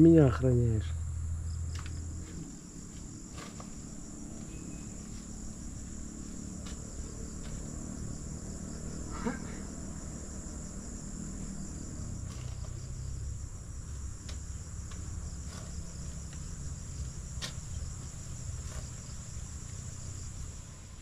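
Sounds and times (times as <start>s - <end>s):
high-pitched insect chorus: 0.0s - 21.0s
knocks of digging in soil: 1.7s - 5.2s, 12.0s - 20.0s.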